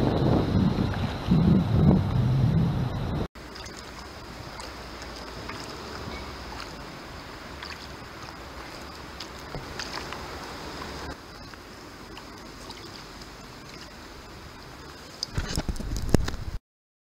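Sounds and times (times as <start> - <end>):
low rumble: 0.0 - 3.3
paddle splashes and drips: 3.4 - 15.4
water wash: 3.4 - 16.3.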